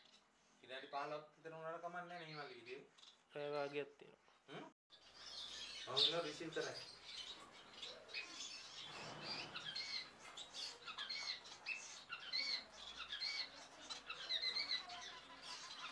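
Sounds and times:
finches chirping: 0:04.9 - 0:15.9.

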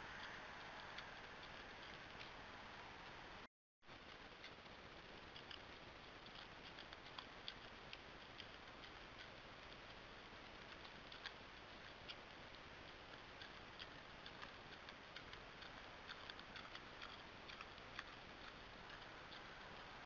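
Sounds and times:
faint steady hiss: 0:00.0 - 0:20.0
wild boar snout clicks: 0:05.4 - 0:20.0.

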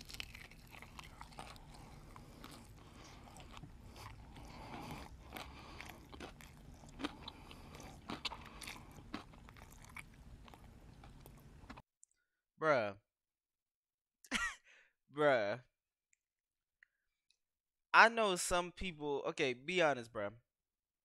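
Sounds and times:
chewing crispy chicken: 0:00.0 - 0:11.8.

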